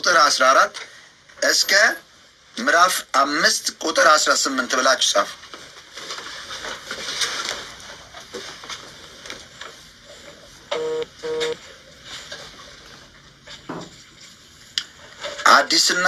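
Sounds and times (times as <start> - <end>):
faint room noise: 0.0 - 16.0
short electronic beeps: 10.7 - 11.6.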